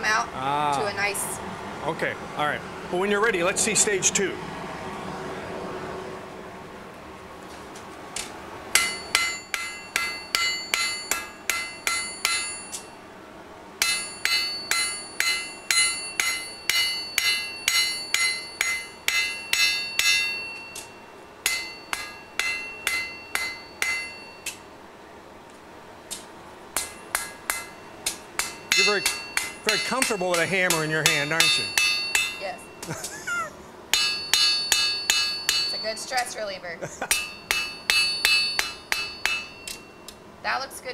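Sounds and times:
hammer ringing on hot steel: 0:08.7 - 0:13.0, 0:13.8 - 0:24.7, 0:26.7 - 0:33.0, 0:33.9 - 0:36.4, 0:37.0 - 0:40.2.

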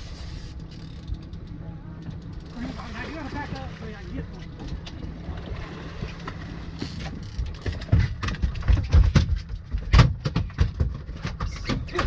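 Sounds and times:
outboard motors idling: 0:00.0 - 0:08.8.

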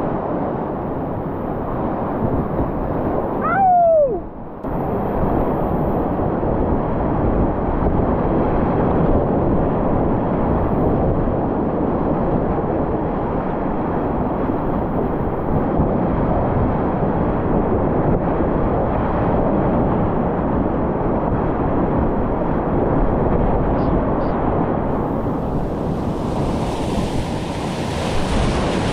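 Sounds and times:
wind buffeting microphone: 0:00.0 - 0:28.9
whitewater rushing: 0:24.9 - 0:28.9.

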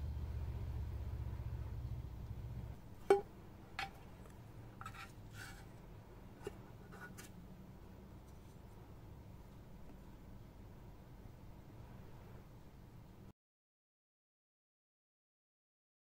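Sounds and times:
plastic spoon clinking on metal tub: 0:03.1 - 0:04.1.

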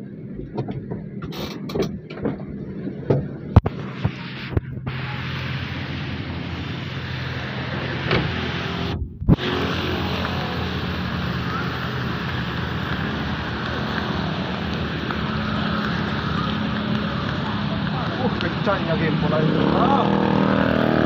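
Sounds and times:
vehicle engines humming: 0:00.0 - 0:21.0
constant hiss: 0:03.6 - 0:20.4.

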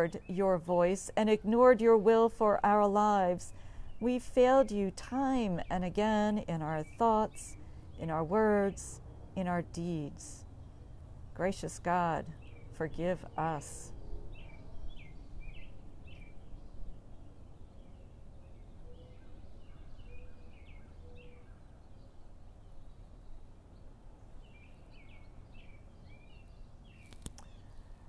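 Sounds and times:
songbirds chirping: 0:00.0 - 0:28.0
sharp click: 0:27.0 - 0:27.5.

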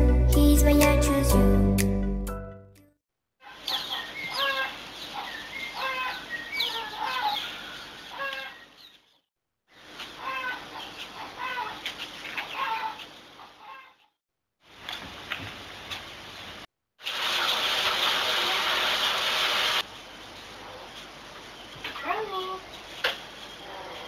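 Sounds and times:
chickens clucking: 0:03.4 - 0:08.9, 0:10.0 - 0:14.0.

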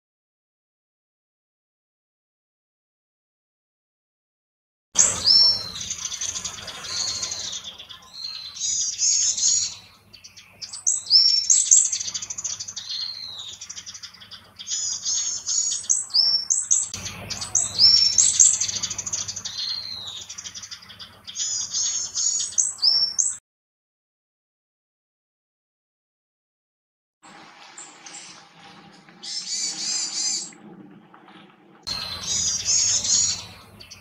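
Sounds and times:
bird singing high thin notes: 0:05.0 - 0:23.4, 0:31.9 - 0:34.0.

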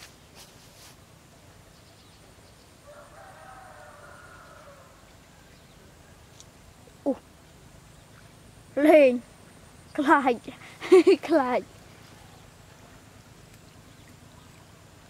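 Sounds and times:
faint rooster crowing: 0:02.8 - 0:06.2.

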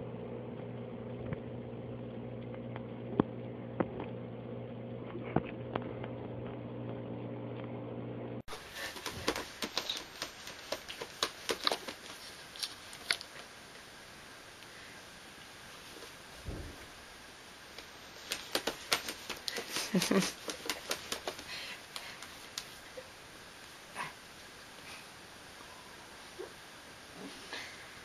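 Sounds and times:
steady low hum: 0:00.0 - 0:28.0
cat claws tapping and scratching: 0:08.5 - 0:13.4, 0:18.2 - 0:22.7.

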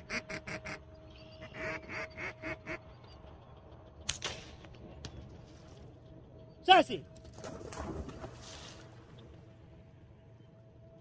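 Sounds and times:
duck call quacks: 0:00.0 - 0:00.8, 0:01.4 - 0:02.8
sharp crack: 0:04.0 - 0:05.1.

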